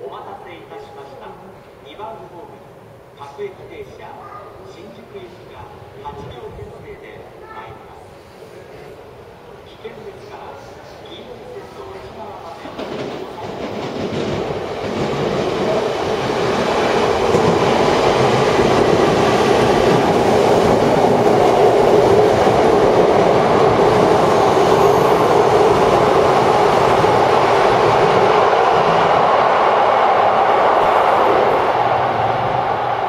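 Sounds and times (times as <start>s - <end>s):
train wheels rumbling on rails: 12.5s - 33.0s.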